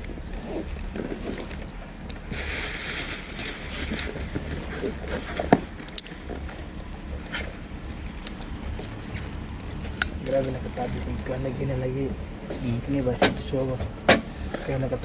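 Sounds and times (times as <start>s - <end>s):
low steady hum: 0.0s - 15.0s
plastic bag rustling: 0.8s - 11.4s.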